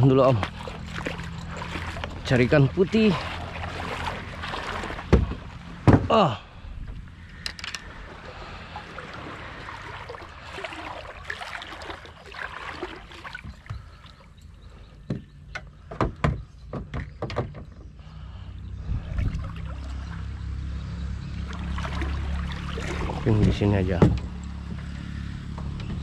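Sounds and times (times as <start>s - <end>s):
water noise: 0.0s - 16.2s, 18.0s - 26.0s
boat engine low hum: 0.0s - 26.0s
sharp knocks: 5.1s - 6.2s.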